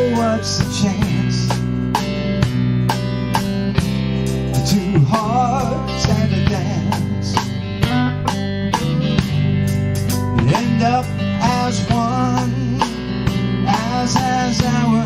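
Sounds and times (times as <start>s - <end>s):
drums keeping a steady beat: 0.0s - 15.0s
electric bass: 0.0s - 15.0s
strummed guitar: 0.0s - 15.0s
melody line with wide vibrato: 7.8s - 9.8s.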